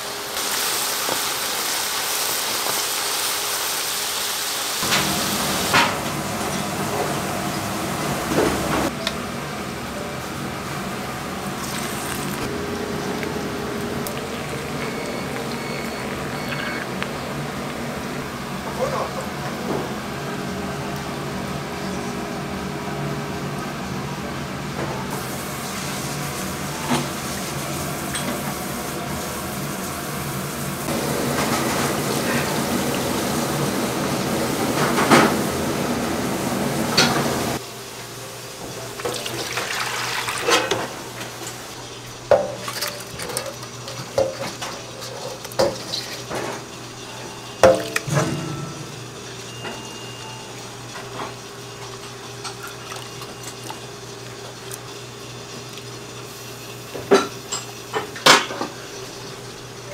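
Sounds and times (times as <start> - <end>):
dishes and pans clattering: 42.3 - 46.7, 57.0 - 58.8.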